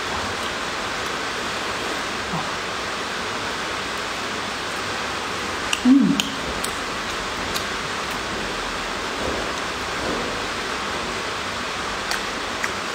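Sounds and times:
humming voice falling in pitch: 5.8s - 6.4s.

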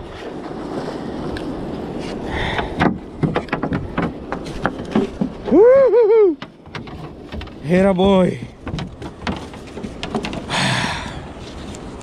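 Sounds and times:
knocks and taps on boat: 2.5s - 5.6s, 6.3s - 10.6s.

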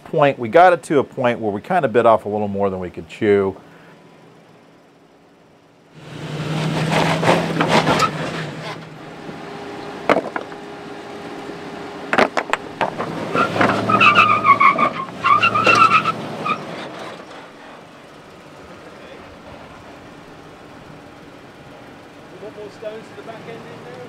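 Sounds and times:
engine working hard: 1.1s - 24.0s
tires squealing on rock: 6.0s - 21.3s
sharp knocks: 10.1s - 10.6s, 12.1s - 13.8s.

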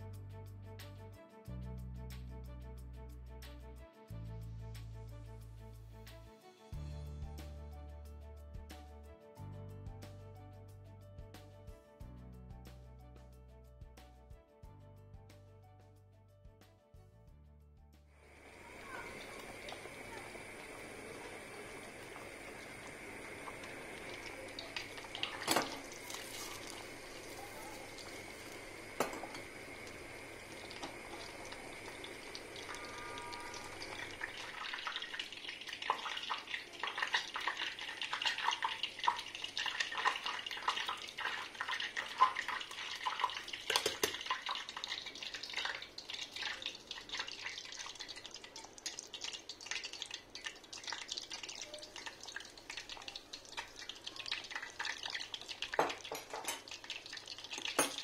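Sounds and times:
butter and oil sizzling: 18.2s - 58.0s.

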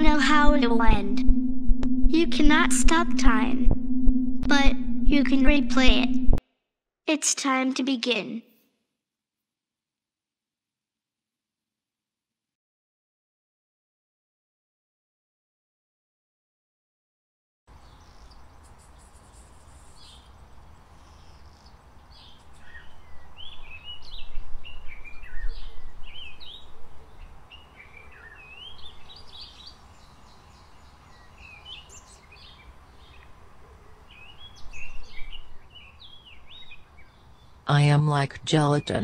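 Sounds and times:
steady low rumble: 0.0s - 6.4s
small birds chirping: 17.7s - 39.0s.

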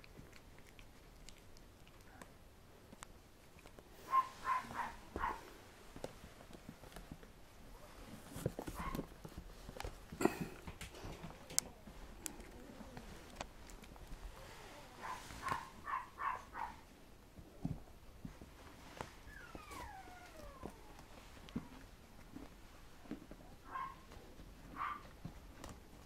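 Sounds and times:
soft fleece rustling: 3.6s - 10.1s, 11.7s - 16.8s
puppy whimpering squeaks: 19.2s - 21.0s.

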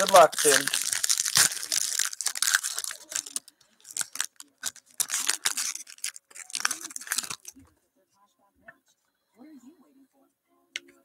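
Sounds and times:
foil wrapper tearing and crinkling: 0.0s - 7.5s.

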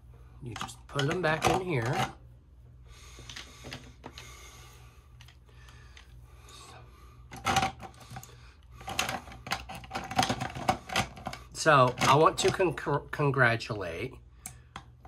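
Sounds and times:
plastic pens clacking in holder: 7.3s - 12.6s.

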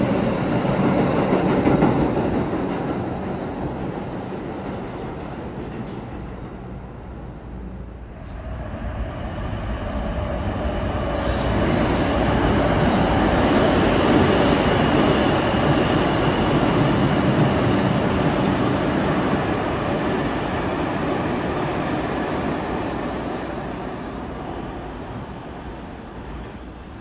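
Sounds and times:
subway train running: 0.0s - 27.0s.

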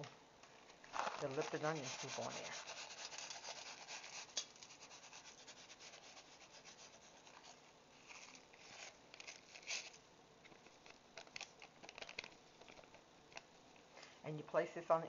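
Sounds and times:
paper packet rustling: 0.5s - 13.0s
dry flakes pattering: 0.6s - 5.3s.

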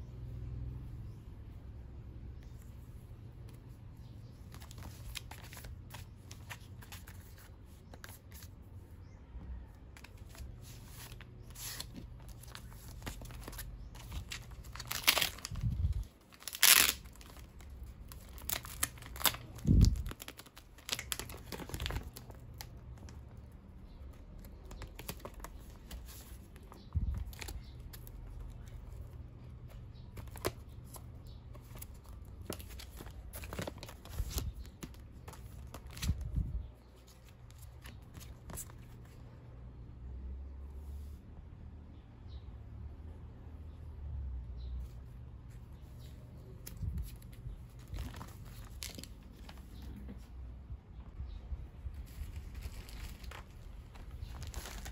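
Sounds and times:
packaging crinkling and rustling: 10.0s - 23.2s, 52.0s - 54.9s
packaging tearing: 12.9s - 22.7s.

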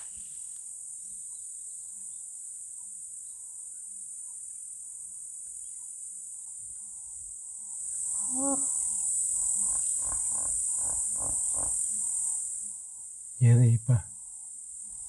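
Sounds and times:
insects shrilling: 7.9s - 12.6s.

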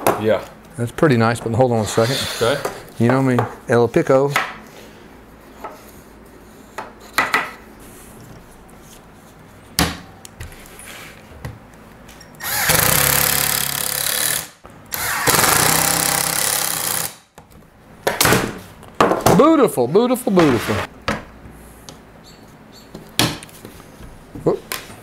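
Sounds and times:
cordless drill driving screws: 12.4s - 17.2s.

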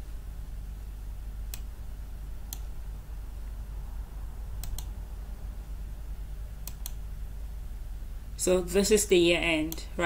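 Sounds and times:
steady low hum: 0.0s - 10.0s
computer mouse clicking: 1.5s - 1.7s, 2.5s - 2.7s, 4.6s - 4.9s, 6.6s - 7.0s.

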